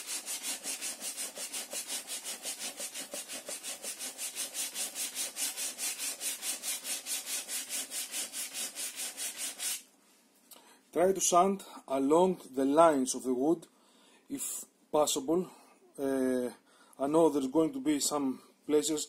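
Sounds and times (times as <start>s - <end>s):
sandpaper rubbing on wood: 0.0s - 9.9s.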